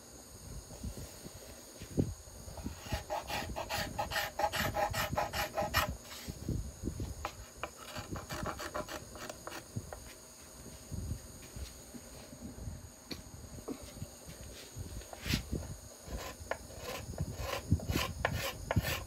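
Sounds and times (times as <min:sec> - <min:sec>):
scraper scraping wood: 0:02.6 - 0:06.3, 0:07.2 - 0:09.7, 0:15.2 - 0:19.0.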